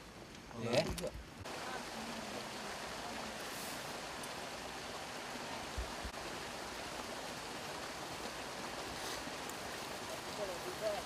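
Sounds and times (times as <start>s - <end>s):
rushing hiss of outdoor noise: 0.0s - 11.0s.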